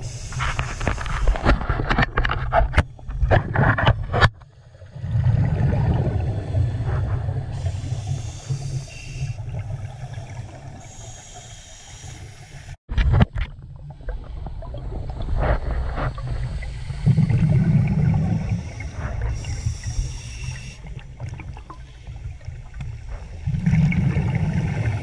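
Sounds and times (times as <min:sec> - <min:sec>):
hissing breath through regulator: 0:00.0 - 0:01.5, 0:06.5 - 0:12.8, 0:15.9 - 0:23.5
rumbling exhalation of bubbles: 0:04.8 - 0:08.2, 0:13.0 - 0:20.0, 0:20.9 - 0:25.0.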